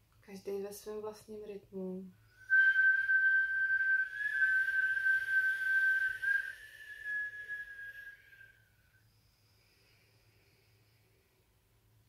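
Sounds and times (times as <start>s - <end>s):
person whistling steady note: 2.2s - 9.0s
breath hiss: 6.4s - 11.4s.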